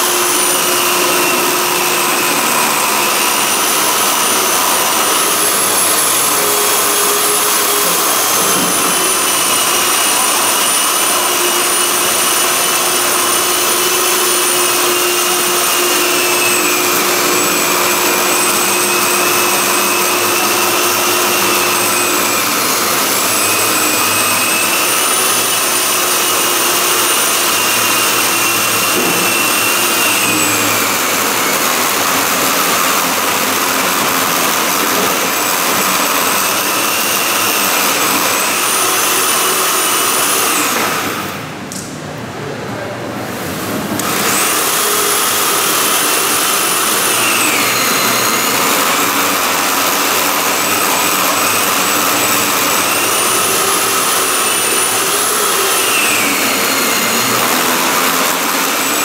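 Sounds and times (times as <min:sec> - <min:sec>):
motor running with high whine: 0:00.0 - 0:41.8, 0:43.2 - 0:59.0.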